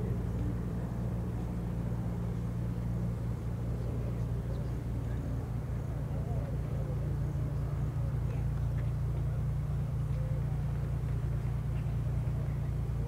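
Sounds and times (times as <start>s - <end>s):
propeller plane engines droning: 0.0s - 13.0s.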